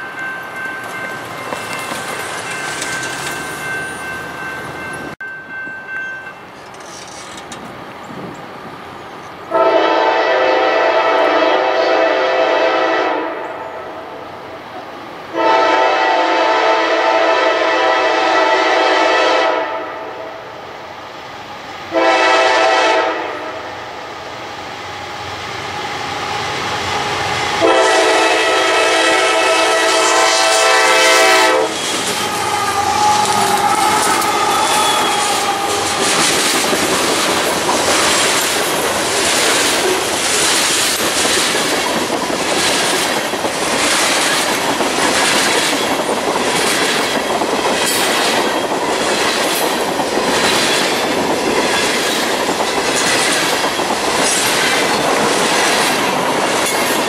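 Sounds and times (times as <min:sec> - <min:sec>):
train wheels clattering over rails: 0:00.0 - 0:05.6, 0:06.2 - 0:08.5, 0:30.0 - 0:57.0
locomotive air horn blasts: 0:09.5 - 0:13.9, 0:15.3 - 0:20.2, 0:21.9 - 0:23.7, 0:27.6 - 0:36.0.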